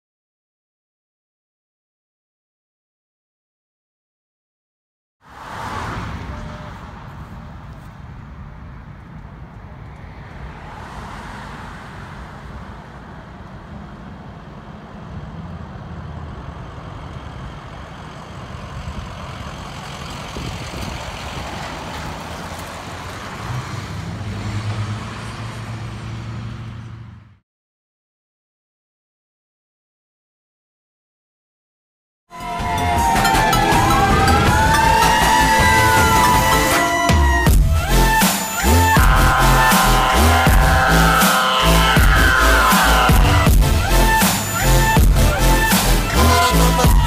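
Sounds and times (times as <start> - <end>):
road traffic passing: 5.2 - 27.4, 32.3 - 47.0
truck engine and tyre noise: 5.2 - 27.4, 32.3 - 47.0
deep engine hum: 41.8 - 47.0.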